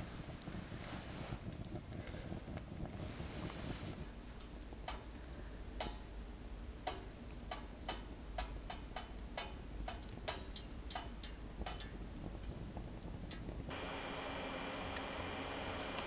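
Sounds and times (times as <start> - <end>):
metal heater ticking and pinging: 4.2 - 16.0.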